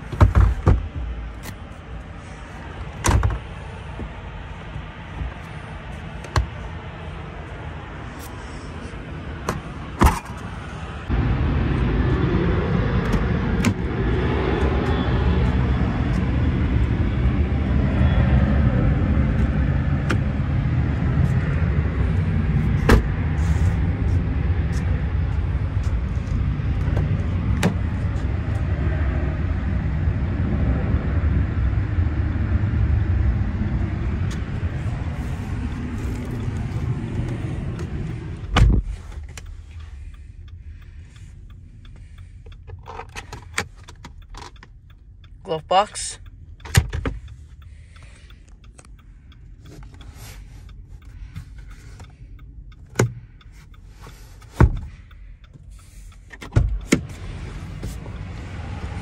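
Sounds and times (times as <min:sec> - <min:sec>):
low rumble: 0:00.0 - 0:42.7
car door shutting: 0:22.8 - 0:23.2, 0:26.9 - 0:28.0, 0:35.9 - 0:39.4, 0:54.5 - 0:54.9, 0:56.3 - 0:57.2.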